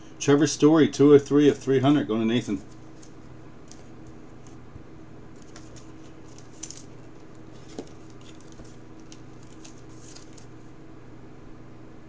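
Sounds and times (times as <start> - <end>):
low steady hum: 0.0 - 12.0
card rustling and clicking: 2.5 - 4.6, 5.3 - 10.7.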